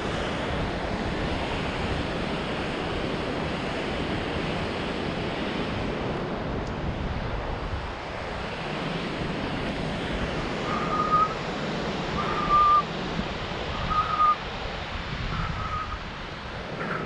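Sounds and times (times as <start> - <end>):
steady rushing noise: 0.0 - 17.0
short whistled notes: 10.7 - 11.4.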